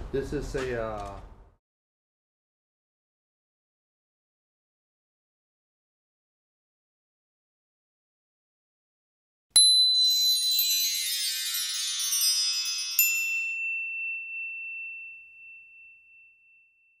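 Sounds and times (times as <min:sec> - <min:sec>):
high chime tones shimmer: 0:09.6 - 0:17.0.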